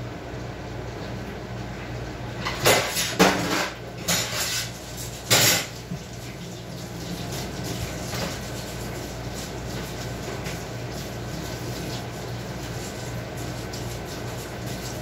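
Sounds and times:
cutlery and dishes clattering: 0:02.5 - 0:04.7.

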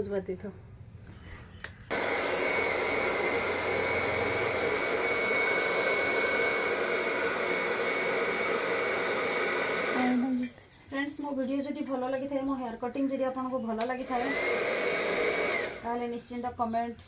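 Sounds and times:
hair dryer blowing: 0:01.9 - 0:10.4, 0:14.0 - 0:15.9.

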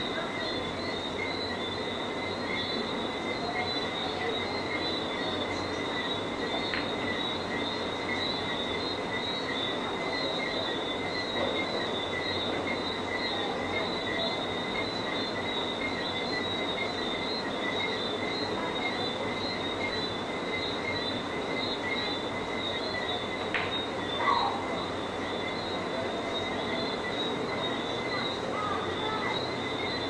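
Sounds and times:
animals calling shrilly: 0:24.1 - 0:25.0.

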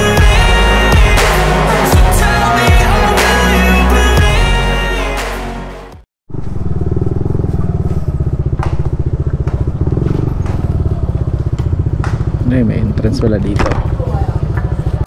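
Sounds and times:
background music: 0:00.0 - 0:06.0
scooter engine running: 0:06.3 - 0:15.0.

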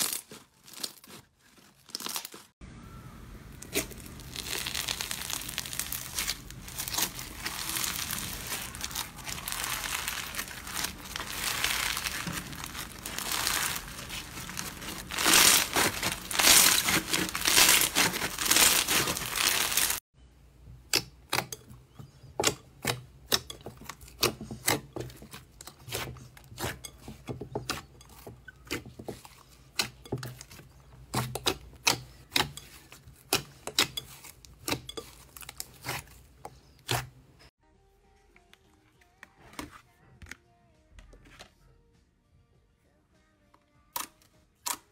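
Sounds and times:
foam slime crackling: 0:03.5 - 0:20.0.

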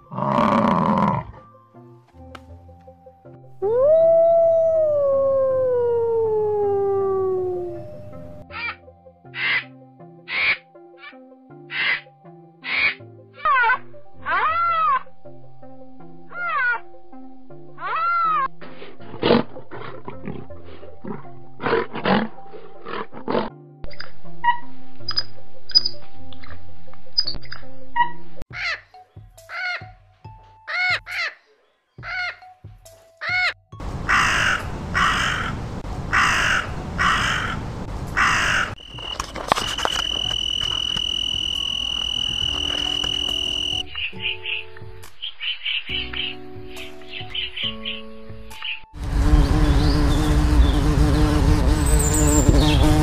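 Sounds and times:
large animal growling and roaring: 0:00.0 - 0:01.4
background music: 0:00.0 - 0:53.0
crow cawing: 0:09.3 - 0:09.7, 0:10.3 - 0:10.6, 0:11.7 - 0:13.0, 0:32.0 - 0:32.4, 0:34.1 - 0:37.6, 0:38.2 - 0:38.8
high-pitched insect trill: 0:38.8 - 0:43.8, 0:51.8 - 0:52.6.

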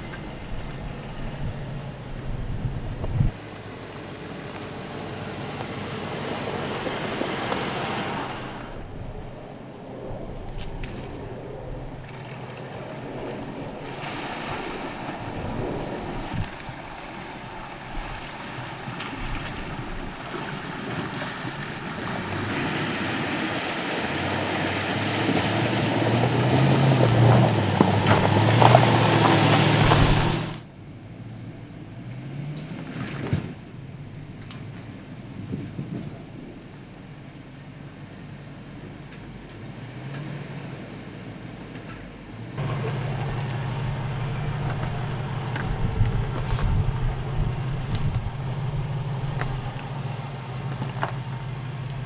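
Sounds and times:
car engine under load: 0:00.0 - 0:52.0
splashing surging water: 0:03.3 - 0:30.6, 0:42.6 - 0:52.0.

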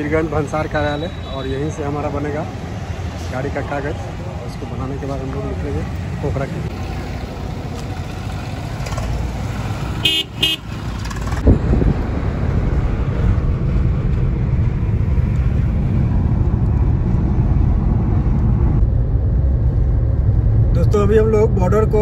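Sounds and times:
street traffic: 0:00.0 - 0:22.0
vehicle horn tooting: 0:10.0 - 0:10.7
road and engine rumble inside car: 0:11.3 - 0:22.0.

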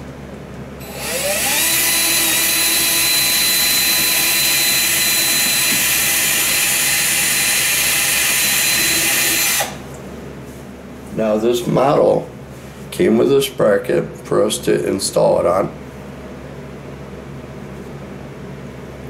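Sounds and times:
power drill boring into wall: 0:00.8 - 0:09.8.

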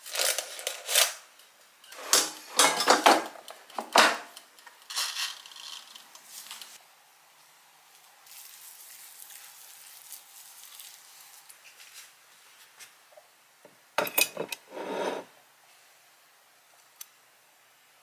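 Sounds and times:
food scraping off wire rack: 0:14.4 - 0:15.3.

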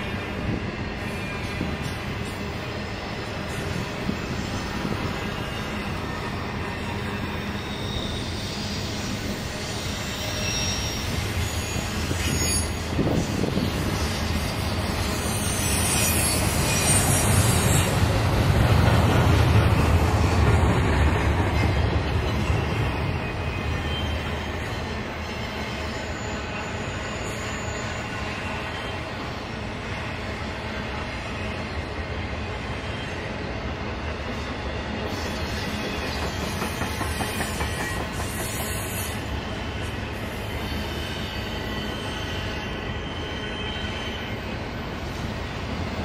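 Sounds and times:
train wheels rumbling on rail: 0:00.0 - 0:46.0
high wheel squeal: 0:03.6 - 0:18.5, 0:21.4 - 0:29.7, 0:34.8 - 0:45.4.

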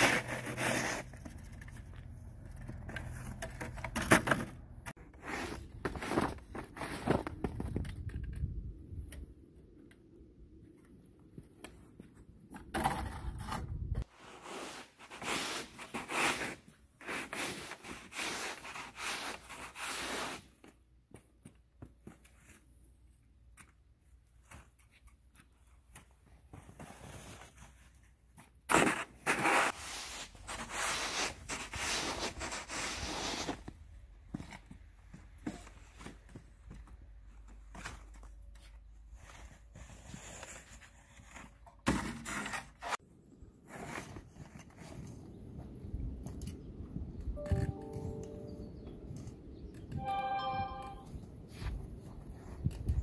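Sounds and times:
snow shovel scraping asphalt: 0:00.0 - 0:01.3, 0:05.0 - 0:07.4, 0:14.0 - 0:20.6, 0:28.7 - 0:33.8.

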